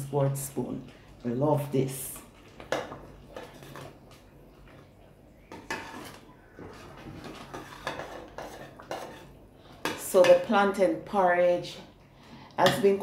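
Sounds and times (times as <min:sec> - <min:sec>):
metal spoon scraping a pot: 0:02.7 - 0:04.0, 0:05.5 - 0:10.5.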